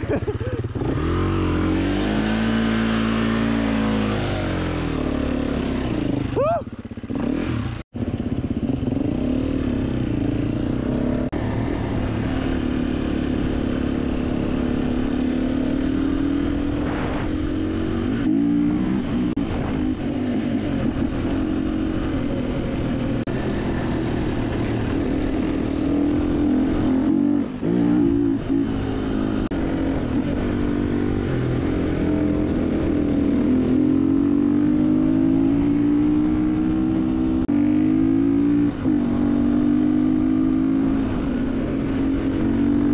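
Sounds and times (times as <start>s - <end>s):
dirt bike engine revving: 0.8s - 42.9s.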